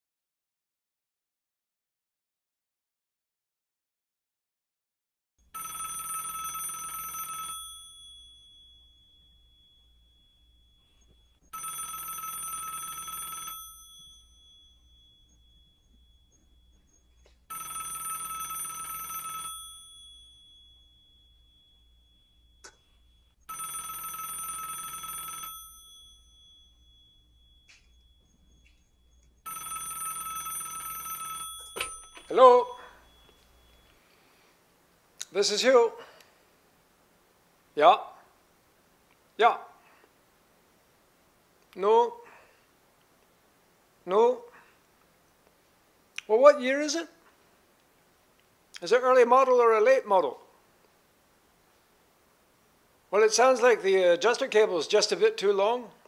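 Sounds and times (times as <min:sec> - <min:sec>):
telephone ringing: 0:05.4 - 0:34.5.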